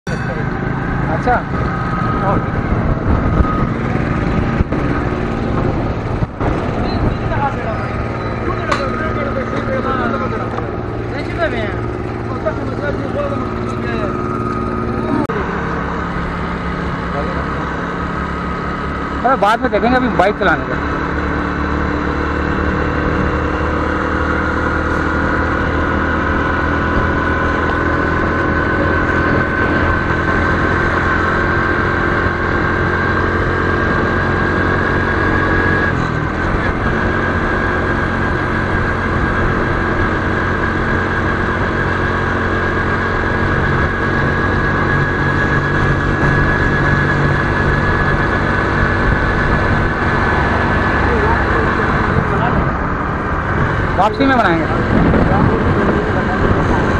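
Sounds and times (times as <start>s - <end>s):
motorcycle engine cruising: 0.0s - 56.9s
road and wind noise: 0.0s - 56.9s.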